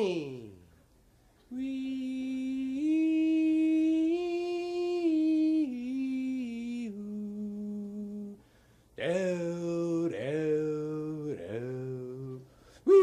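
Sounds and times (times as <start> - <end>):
man humming a slow melody: 1.5 - 8.4, 9.7 - 13.0.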